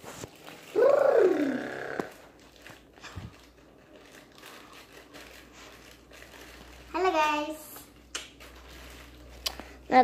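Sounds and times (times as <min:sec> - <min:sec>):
child's drawn-out vocal sound: 0:00.8 - 0:02.0.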